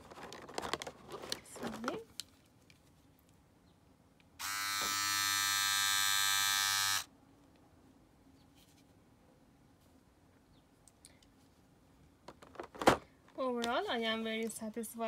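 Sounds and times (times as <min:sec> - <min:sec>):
electric shaver buzzing: 0:04.4 - 0:07.1.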